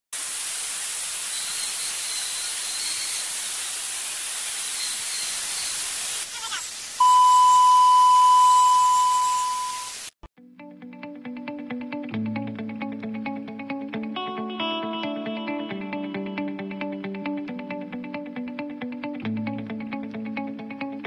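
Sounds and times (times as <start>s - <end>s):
static hiss crackle: 0.2s - 7.7s
long electronic beep: 7.0s - 10.1s.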